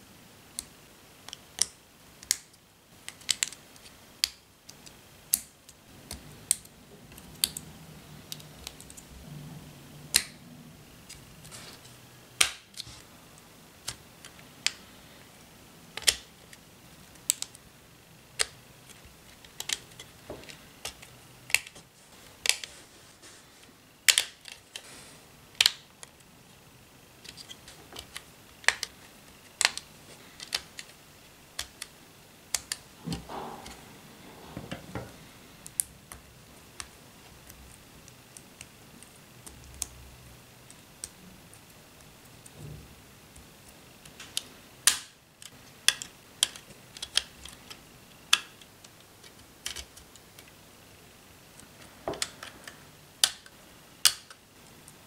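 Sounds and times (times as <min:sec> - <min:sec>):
plastic pieces snapping together: 0:12.4 - 0:12.9, 0:16.0 - 0:16.6, 0:18.4 - 0:21.8, 0:24.0 - 0:24.8, 0:25.6 - 0:26.1, 0:27.2 - 0:31.0, 0:31.6 - 0:31.9, 0:44.0 - 0:50.5, 0:51.6 - 0:54.4.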